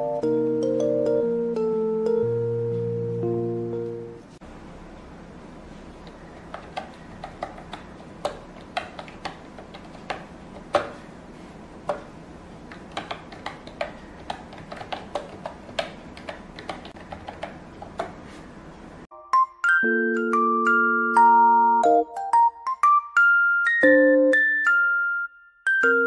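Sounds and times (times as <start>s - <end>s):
keyboard key clicks: 6.0s - 11.0s, 12.7s - 18.2s.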